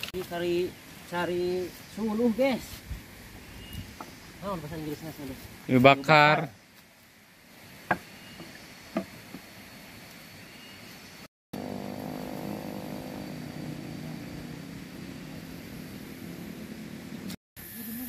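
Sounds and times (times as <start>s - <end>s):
distant engine droning: 11.6s - 17.4s.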